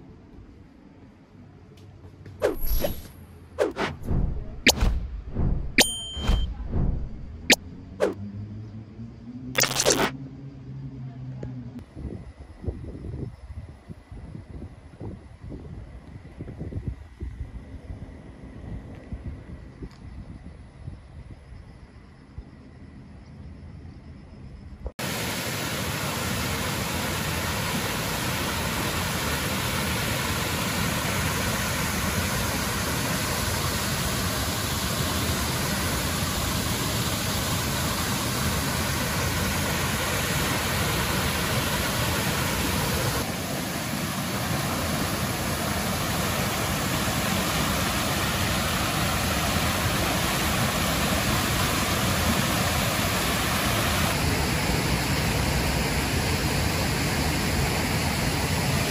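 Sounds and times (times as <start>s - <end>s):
river water rushing: 25.0s - 58.9s.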